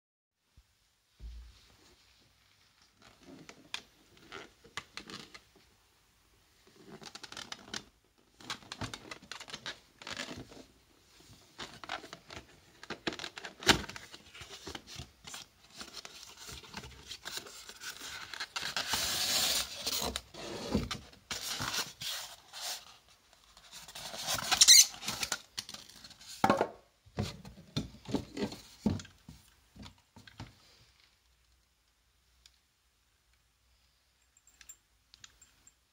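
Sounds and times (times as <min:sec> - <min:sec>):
cardboard box rustling and scraping: 0:15.7 - 0:22.9.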